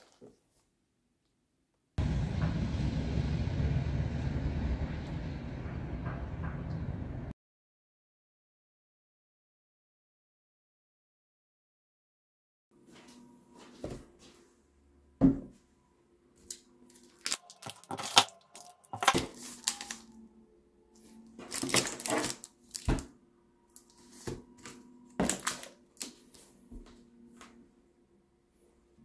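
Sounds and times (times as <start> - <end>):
plastic and foil wrappers crinkling: 16.4 - 20.2, 21.4 - 23.1, 23.8 - 26.5.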